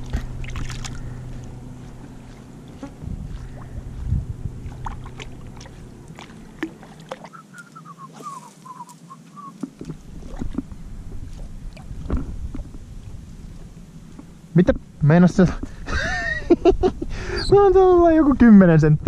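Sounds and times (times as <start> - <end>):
water lapping: 0.0 - 12.7
steady low hum: 0.0 - 19.0
faint chirps falling in pitch: 7.2 - 9.6.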